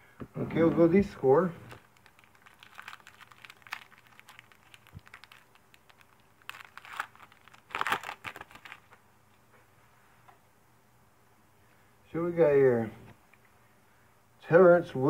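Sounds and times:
foil wrapper crinkling and tearing: 1.6 - 9.0.

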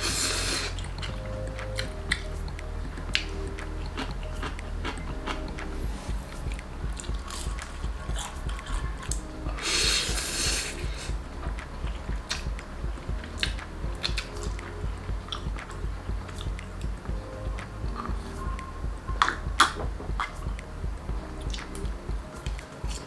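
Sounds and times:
loud hissing slurp: 0.0 - 0.8
quiet background music: 0.0 - 23.0
wet chewing clicks: 0.2 - 17.0.

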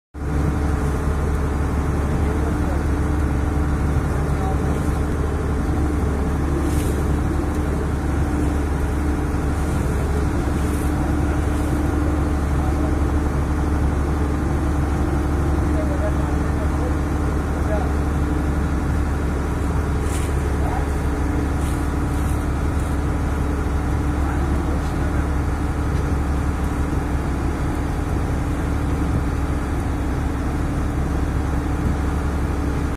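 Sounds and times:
boat engine droning: 0.2 - 32.9.

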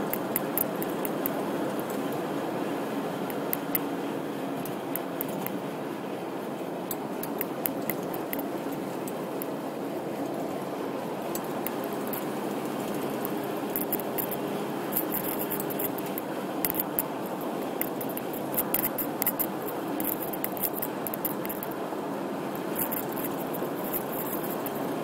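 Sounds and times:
sharp crackling clicks: 0.0 - 2.0, 3.3 - 3.9, 4.6 - 5.6, 6.9 - 9.6, 11.3 - 21.8, 22.5 - 24.8
road and engine noise in car: 0.0 - 25.0.

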